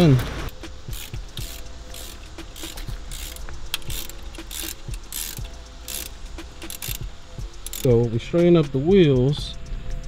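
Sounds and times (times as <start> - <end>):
ratchet wrench clicking: 0.5 - 10.0.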